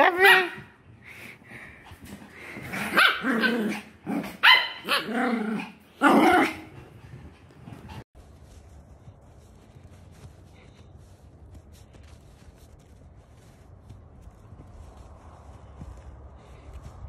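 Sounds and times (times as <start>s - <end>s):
dogs barking and growling: 1.9s - 8.0s.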